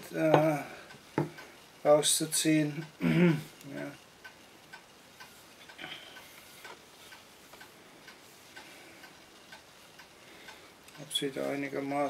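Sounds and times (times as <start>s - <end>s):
clock ticking: 0.0s - 12.0s
soft rustle of handling: 5.2s - 10.1s, 10.9s - 12.0s.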